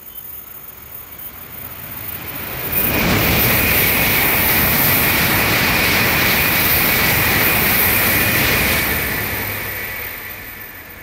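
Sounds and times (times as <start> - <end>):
high-speed train rushing past: 0.0 - 11.0.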